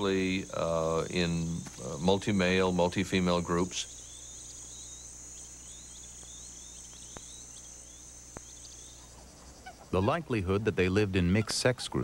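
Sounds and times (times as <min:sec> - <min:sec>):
crickets buzzing: 0:00.0 - 0:11.4
faint clicks: 0:06.0 - 0:07.7, 0:08.3 - 0:08.8.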